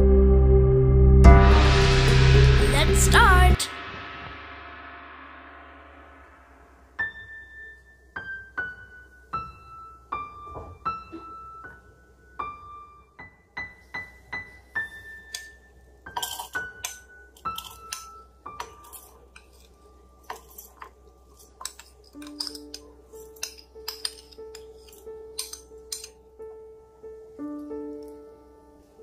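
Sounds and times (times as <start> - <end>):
background music: 0.0 - 5.0, 15.3 - 29.0
metal spoon clinking against glass: 16.1 - 19.7, 20.3 - 26.2.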